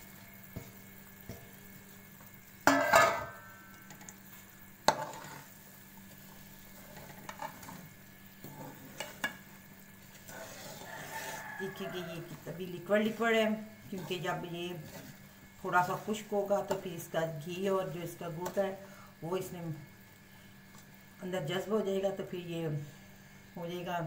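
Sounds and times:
metal spoon scraping a pan: 0:02.6 - 0:03.5, 0:04.8 - 0:05.6, 0:06.2 - 0:17.1.

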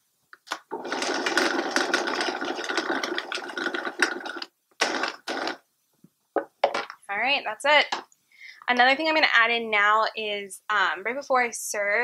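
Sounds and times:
blender running: 0:00.7 - 0:05.6.

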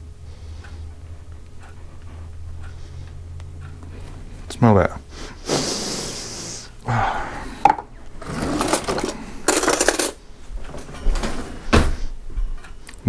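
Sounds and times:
metal utensils clinking and rattling: 0:08.2 - 0:10.2.

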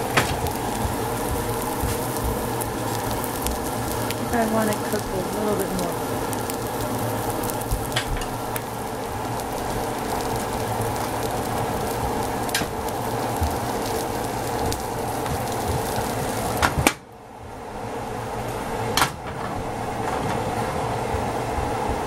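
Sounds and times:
omelette sizzling in pan: 0:00.0 - 0:18.7.

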